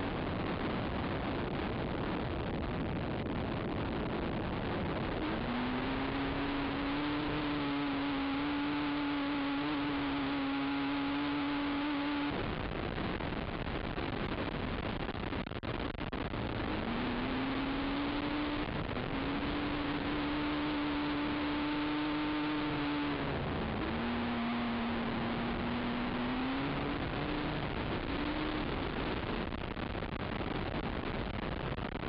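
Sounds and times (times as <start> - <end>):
wind noise on microphone: 0.0 - 6.4, 12.2 - 20.1.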